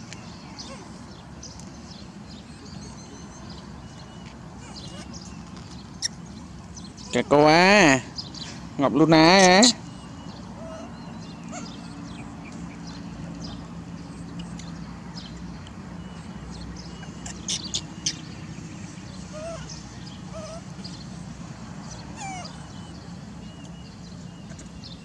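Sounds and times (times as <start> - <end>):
animal squeaks and chirps: 3.2 - 6.2, 9.4 - 12.1, 16.8 - 18.3, 19.2 - 20.7, 22.1 - 23.0.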